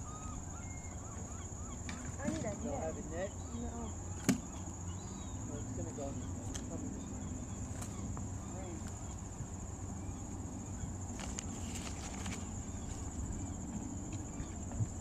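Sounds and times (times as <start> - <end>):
wind rumble on microphone: 6.2 - 15.0.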